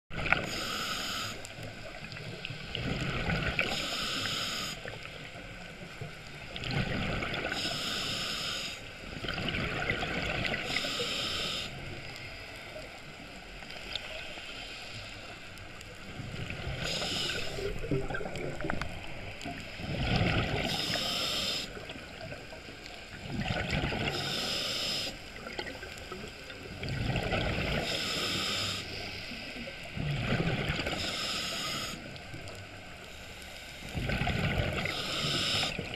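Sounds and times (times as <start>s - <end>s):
scuba regulator hissing inhale: 0.3s - 1.7s, 3.6s - 5.2s, 7.4s - 9.0s, 10.5s - 12.4s, 16.4s - 17.9s, 20.6s - 22.0s, 24.0s - 25.5s, 27.7s - 29.7s, 30.9s - 34.0s, 34.8s - 35.9s
exhaled bubbles rushing: 9.2s - 10.6s, 17.4s - 19.0s, 19.8s - 20.7s, 23.2s - 24.1s, 26.7s - 27.9s, 34.0s - 34.9s.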